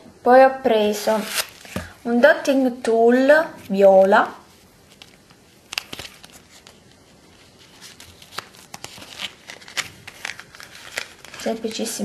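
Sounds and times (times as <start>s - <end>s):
plastic blister pack crinkling: 4.8s - 12.0s.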